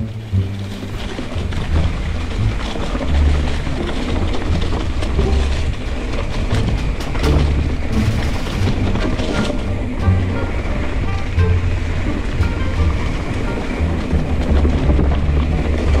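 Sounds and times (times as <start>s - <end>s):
bike rattles and clicks: 0.0s - 16.0s
tyre rumble on dirt: 0.0s - 16.0s
wind buffeting microphone: 0.0s - 16.0s.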